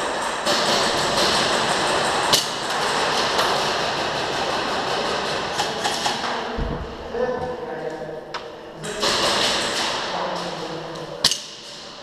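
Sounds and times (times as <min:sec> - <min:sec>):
airsoft guns firing: 0:09.0 - 0:10.1.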